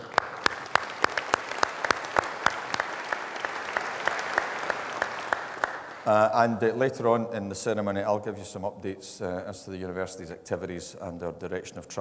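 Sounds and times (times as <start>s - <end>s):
nearby hands clapping evenly: 0.0s - 6.1s
audience applauding: 0.0s - 6.5s.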